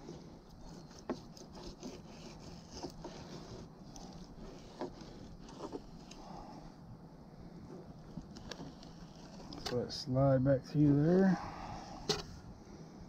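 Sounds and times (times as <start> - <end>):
knife scraping fish: 0.0 - 6.6, 8.0 - 9.8.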